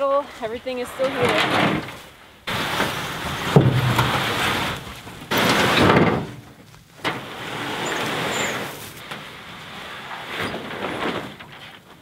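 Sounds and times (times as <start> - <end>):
canoe hull scraping through brush: 0.8 - 11.4.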